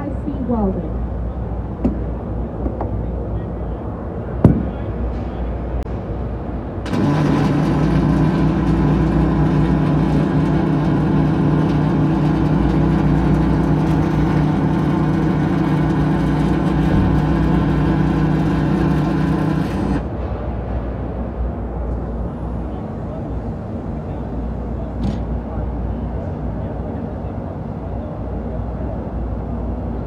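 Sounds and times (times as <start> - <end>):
welding arc buzzing: 6.8 - 20.1.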